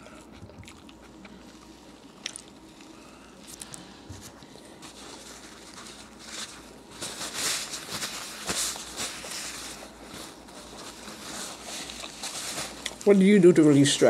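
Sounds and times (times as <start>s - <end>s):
quiet chewing: 0.0s - 6.7s, 9.8s - 13.1s
paper napkin rustling: 3.4s - 14.0s.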